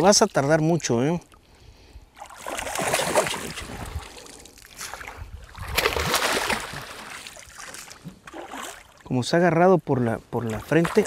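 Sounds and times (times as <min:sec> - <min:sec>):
fish thrashing and splashing: 0:02.2 - 0:09.1.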